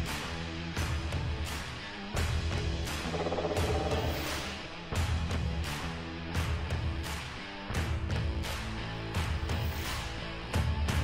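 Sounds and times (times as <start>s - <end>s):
low held bass line: 2.9s - 4.6s
drum hits: 3.0s - 4.5s.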